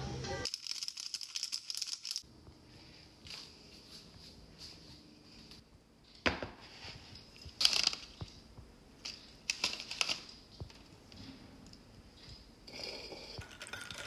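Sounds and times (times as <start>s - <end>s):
plastic packet crinkling: 0.5s - 2.2s.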